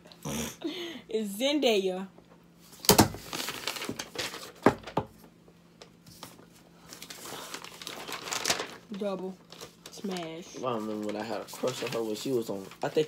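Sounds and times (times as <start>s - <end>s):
paper rustling: 3.2s - 4.7s, 6.1s - 13.0s.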